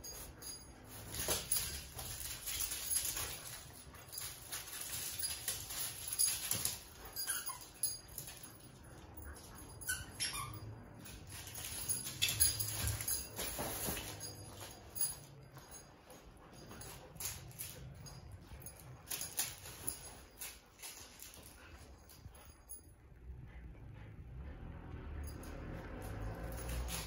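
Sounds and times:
toy rustling and being chewed: 0.0s - 23.6s, 25.2s - 27.0s
short high squeaks: 9.8s - 11.0s.

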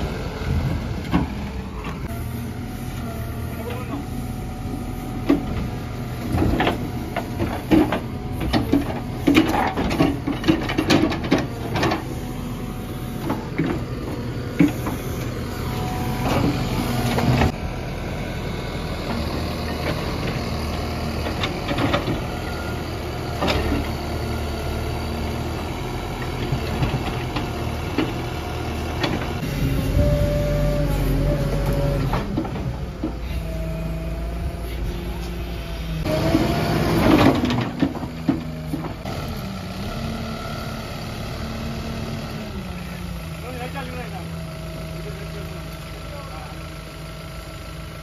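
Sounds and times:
diesel engine running: 0.0s - 48.0s
backhoe clanks and knocks: 0.1s - 2.1s, 5.0s - 17.6s, 18.8s - 35.4s, 36.0s - 40.0s.

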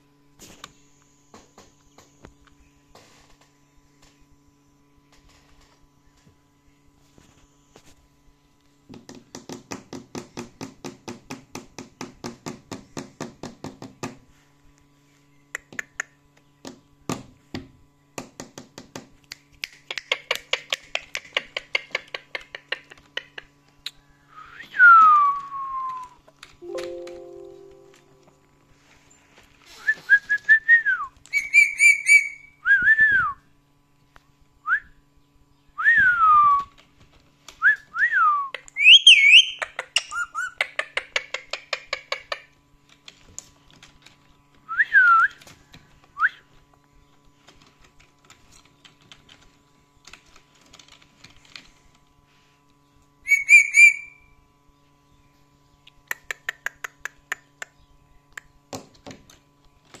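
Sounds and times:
parakeet whistling: 31.3s - 32.5s, 38.8s - 40.6s, 53.3s - 54.3s.

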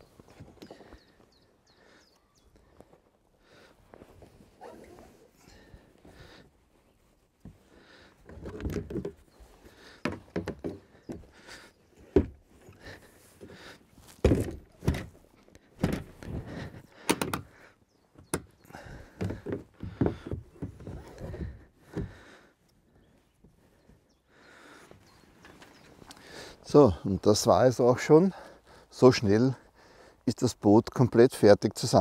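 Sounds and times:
kayak hull sections knocking: 8.3s - 9.3s, 10.0s - 11.4s, 12.0s - 12.5s, 14.2s - 15.2s, 15.8s - 16.4s, 17.0s - 17.5s, 18.2s - 22.2s.

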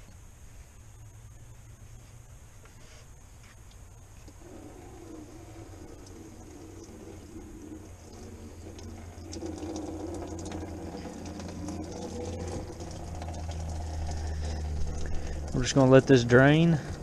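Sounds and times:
coolant draining into bucket: 4.3s - 17.0s.

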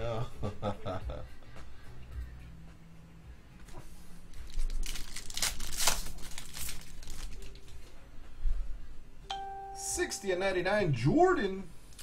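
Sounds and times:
foil wrapper crinkling: 4.3s - 8.0s.

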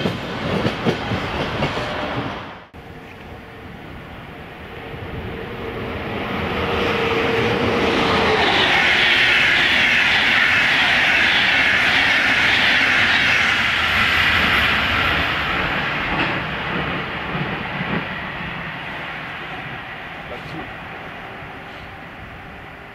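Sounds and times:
train wheels clattering over rails: 0.0s - 2.3s, 6.7s - 20.7s
electric locomotive whine: 0.0s - 22.9s.

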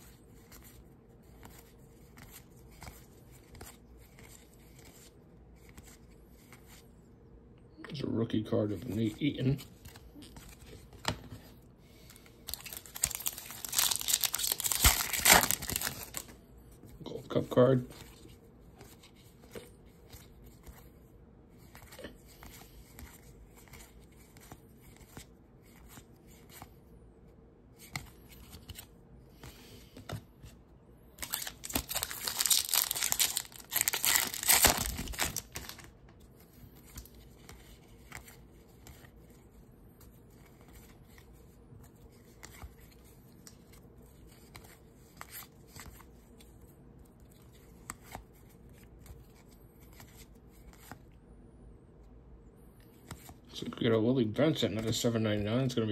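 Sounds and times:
trading cards flicking and rustling: 0.0s - 6.9s, 8.6s - 26.9s, 27.7s - 30.6s, 31.2s - 51.1s
card pack wrapper tearing: 12.5s - 16.3s, 31.2s - 35.9s.

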